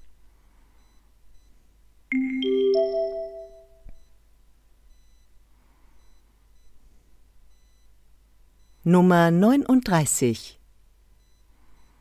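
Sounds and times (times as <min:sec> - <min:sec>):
three-note rising chime: 0:02.1 - 0:03.8.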